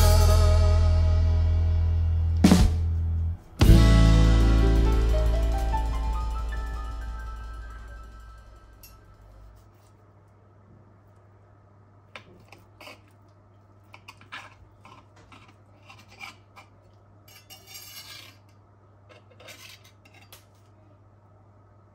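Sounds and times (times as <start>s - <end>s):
steady low hum: 0.0s - 15.8s
cutlery scraping on stone: 12.2s - 13.2s, 13.9s - 20.7s.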